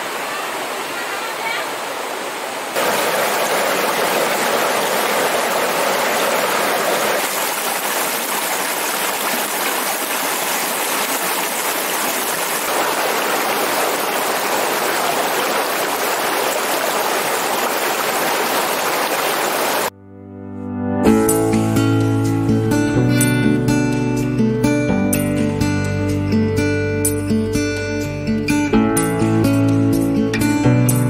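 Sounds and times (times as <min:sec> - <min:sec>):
river rushing over rocks: 0:00.0 - 0:19.9.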